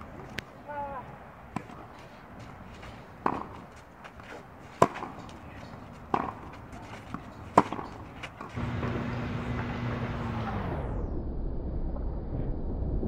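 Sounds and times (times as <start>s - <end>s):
tennis ball hits: 1.5s - 10.0s.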